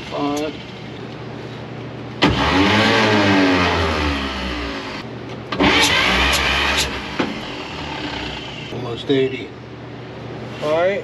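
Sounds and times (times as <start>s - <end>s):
starter cranking engine: 5.6s - 8.6s.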